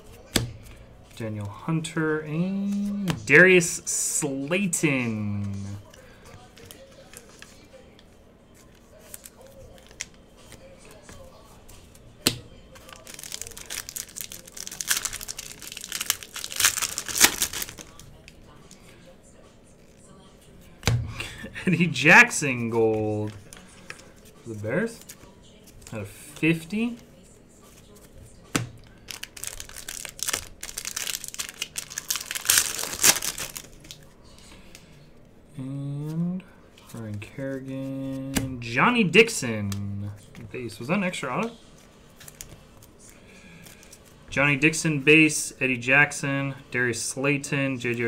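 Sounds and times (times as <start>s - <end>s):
foil wrapper crinkling and tearing: 12.8s - 18.3s, 28.9s - 34.0s, 42.2s - 42.9s.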